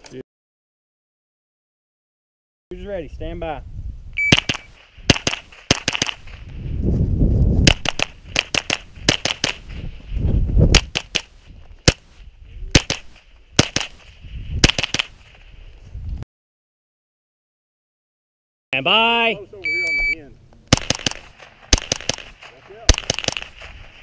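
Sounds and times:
rifle shots: 4.2 - 6.4, 7.6 - 9.7, 12.7 - 15.2, 20.7 - 24.0.

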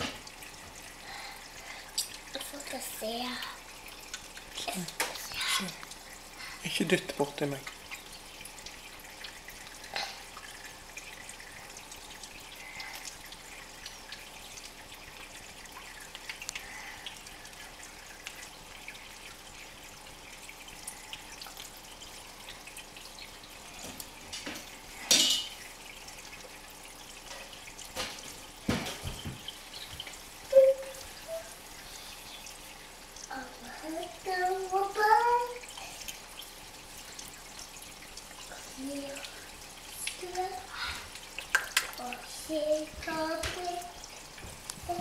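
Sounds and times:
water trickling and dripping: 0.0 - 45.0.

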